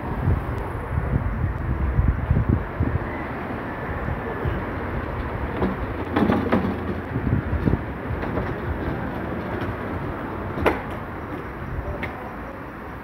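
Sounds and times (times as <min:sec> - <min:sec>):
wind rumble: 0:00.0 - 0:13.0
sharp knocks: 0:05.6 - 0:11.4.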